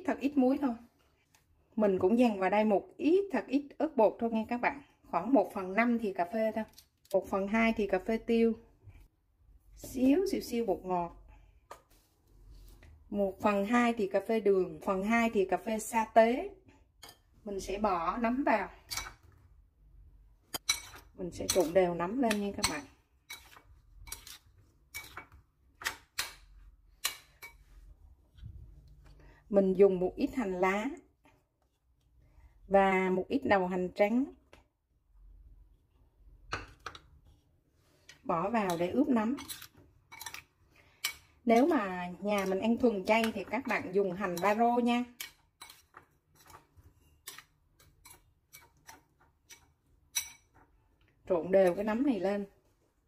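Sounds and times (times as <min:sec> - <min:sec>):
metal spoon scraping ceramic bowl: 0:17.0 - 0:17.4, 0:20.5 - 0:25.4, 0:38.6 - 0:50.6
metal spoon clinking on bowl: 0:47.2 - 0:50.5.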